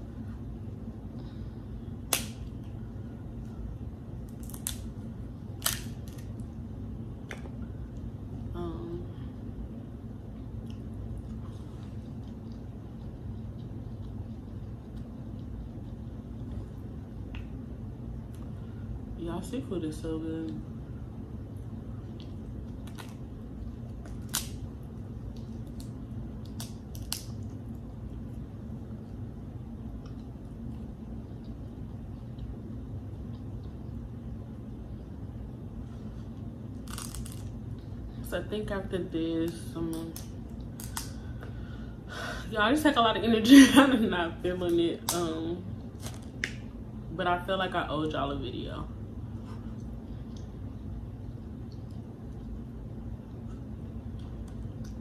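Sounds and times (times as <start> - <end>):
steady low hum: 0.0 - 55.0
crab shells cracking: 4.3 - 4.9, 5.6 - 6.4, 24.0 - 24.6, 25.6 - 27.5, 36.8 - 37.6, 40.2 - 41.2.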